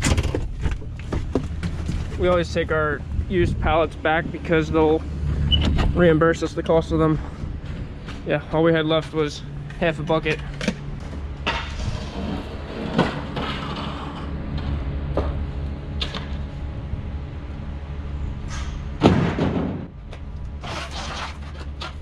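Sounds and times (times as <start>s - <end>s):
wooden pallets knocking and clattering: 0.0s - 2.6s
steady low hum: 0.0s - 22.0s.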